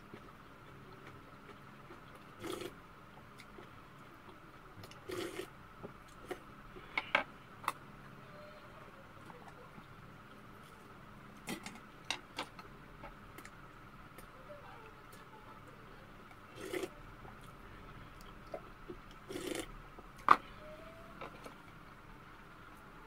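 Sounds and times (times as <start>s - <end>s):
slurping soup: 2.4s - 2.8s, 5.0s - 5.5s, 16.5s - 16.9s, 19.2s - 19.7s.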